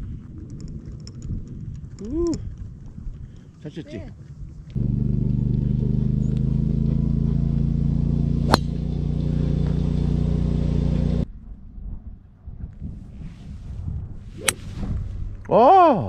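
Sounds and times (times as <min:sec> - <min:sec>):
golf driver striking ball: 0:08.4 - 0:09.8.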